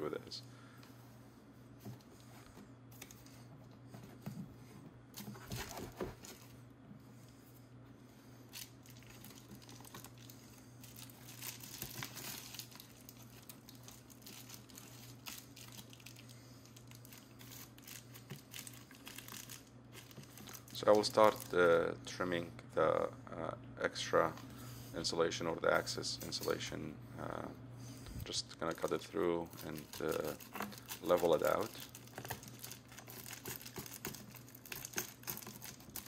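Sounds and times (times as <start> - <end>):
foil insulation crinkling: 8.5 - 21.7, 28.6 - 36.0.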